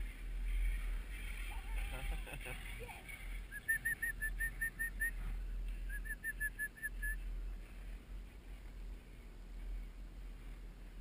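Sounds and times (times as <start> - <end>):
low steady rumble: 0.0 - 11.0.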